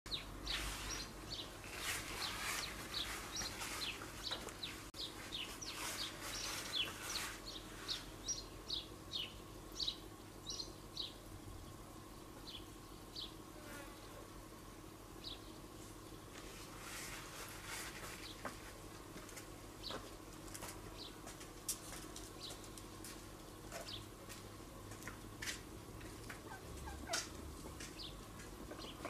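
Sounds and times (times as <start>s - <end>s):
small birds chirping: 0.1s - 13.4s, 15.1s - 16.3s, 19.7s - 20.1s, 20.8s - 21.3s, 22.2s - 24.1s, 26.0s - 29.0s
faint steady hum: 0.1s - 29.0s.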